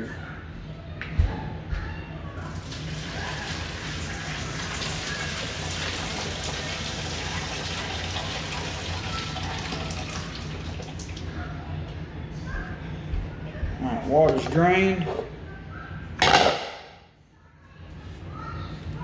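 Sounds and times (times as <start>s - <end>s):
water pouring into a sink: 2.5s - 11.3s.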